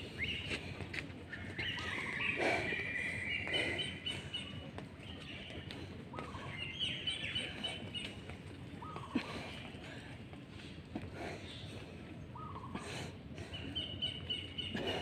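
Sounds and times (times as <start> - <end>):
birds chirping: 0.0 - 15.0
outdoor background noise: 0.0 - 15.0.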